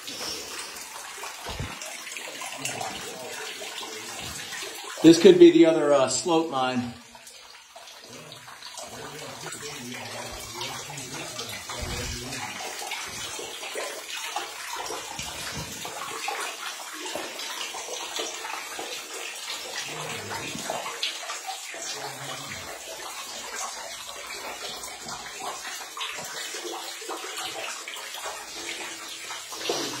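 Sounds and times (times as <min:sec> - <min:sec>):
water splashing from wading: 0:00.0 - 0:05.0.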